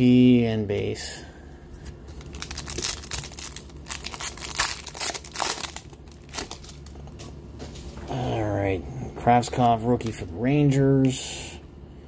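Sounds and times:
foil wrapper tearing and crinkling: 0:02.2 - 0:06.9.

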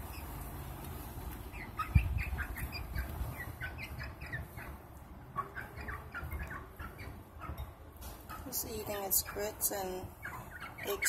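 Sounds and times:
hens chirping softly: 0:00.0 - 0:11.0.

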